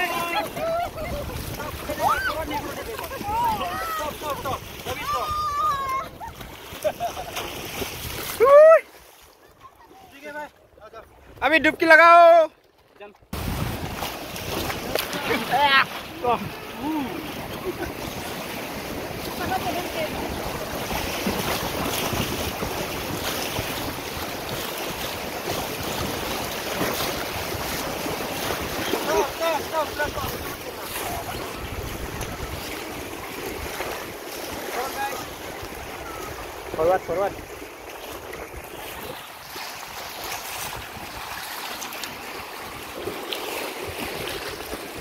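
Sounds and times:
wind buffeting microphone: 0:00.0 - 0:08.4, 0:13.3 - 0:41.3
faint splashes: 0:00.0 - 0:11.5, 0:12.4 - 0:45.0
river rapids rushing: 0:13.4 - 0:35.6.

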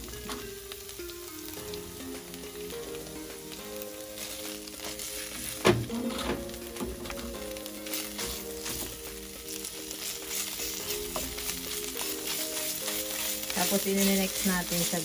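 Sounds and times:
curry paste sizzling in oil: 0:00.0 - 0:15.0
wooden spatula scraping pan: 0:10.0 - 0:15.0.

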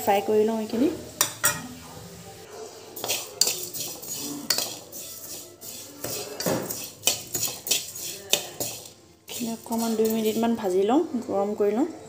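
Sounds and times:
metal spoon scraping a pan: 0:03.0 - 0:10.9.

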